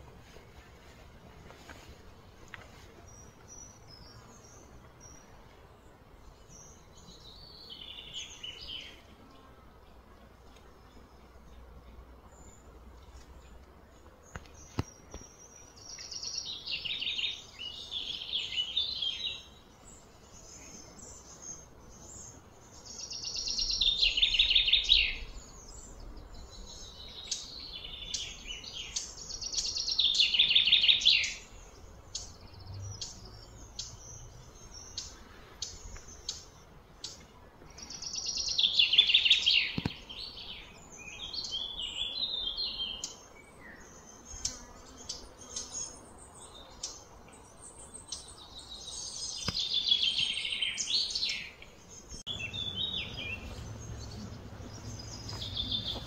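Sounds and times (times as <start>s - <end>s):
soft bird chirps: 0.0s - 56.0s
bird chirping trill: 37.8s - 56.0s.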